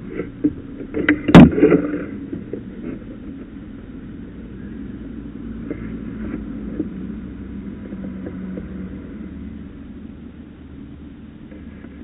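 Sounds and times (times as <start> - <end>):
faint clicks and knocks: 0.0 - 3.6, 7.8 - 9.0
low city rumble and hum: 0.0 - 12.0.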